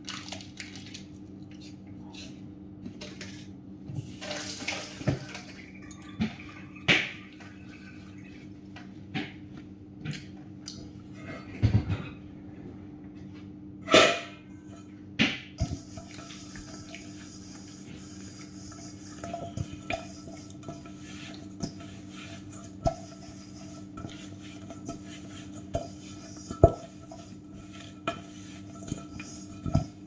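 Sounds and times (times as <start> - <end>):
steady low hum: 0.1 - 30.0
dishes knocking and clinking: 11.2 - 12.2.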